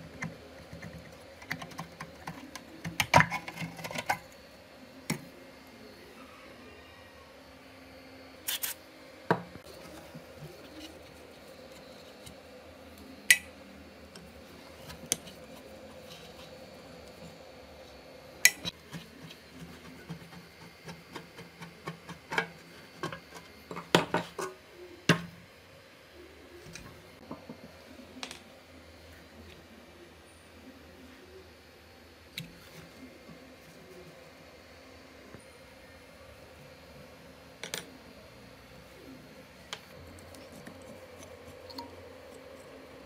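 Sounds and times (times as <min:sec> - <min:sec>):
metal taps and scrapes: 0:18.4 - 0:25.2.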